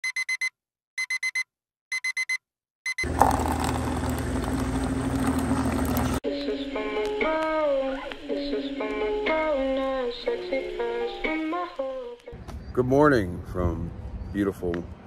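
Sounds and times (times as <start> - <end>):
electronic alarm beeping: 0.0 - 3.1
coffee dispenser humming and hissing: 3.1 - 6.2
music: 6.2 - 12.4.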